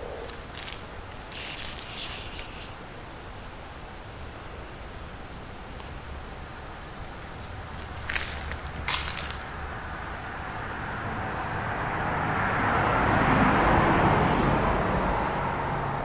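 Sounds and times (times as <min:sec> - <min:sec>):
handling rustle: 0:00.0 - 0:02.8, 0:07.2 - 0:09.5
vehicle passing by: 0:07.5 - 0:16.0.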